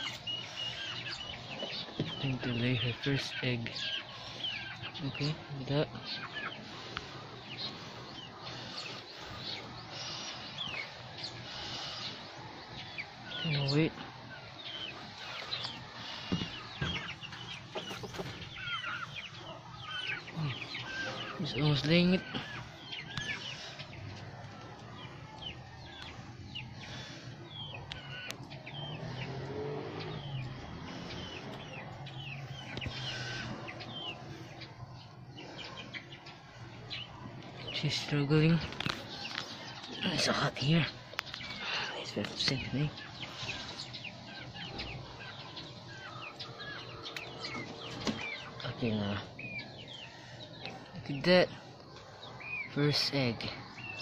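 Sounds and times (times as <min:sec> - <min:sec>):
small birds chirping: 0:00.0 - 0:54.0
steady outdoor hiss: 0:00.0 - 0:54.0.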